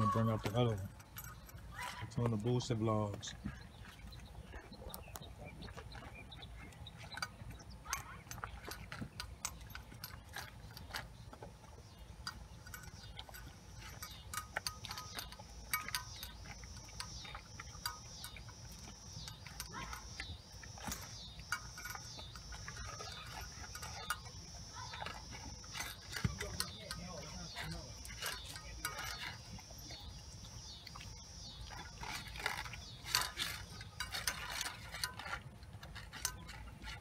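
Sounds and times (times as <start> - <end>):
teeth clinking on metal bowl: 0.0 - 2.7, 5.9 - 37.0
dog crunching kibble: 0.0 - 37.0
high pulsing chirp: 12.2 - 34.4.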